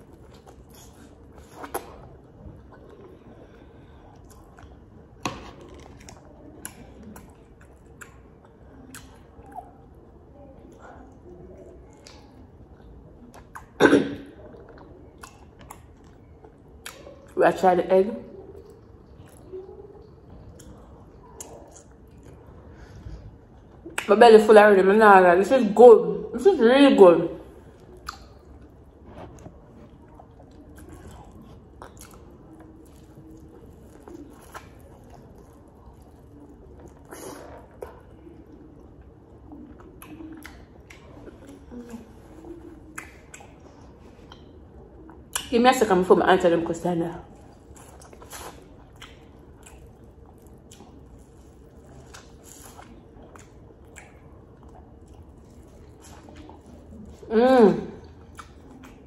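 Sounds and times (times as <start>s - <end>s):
person chewing corn on the cob: 0.0s - 10.0s, 14.4s - 17.4s, 18.5s - 24.1s, 27.6s - 45.5s, 47.3s - 57.3s, 58.0s - 59.0s
mouth smacks and clicks: 28.0s - 28.6s, 42.6s - 45.5s, 47.6s - 56.9s, 58.0s - 59.0s.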